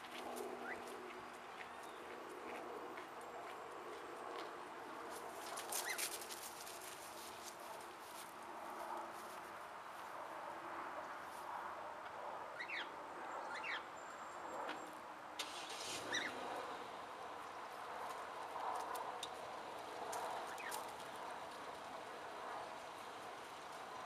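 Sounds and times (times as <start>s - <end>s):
bird chirps: 12.6s - 13.9s.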